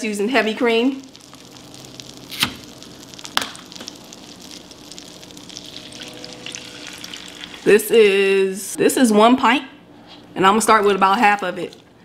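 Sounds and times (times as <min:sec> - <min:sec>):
butter sizzling in a frying pan: 0:00.4 - 0:08.2.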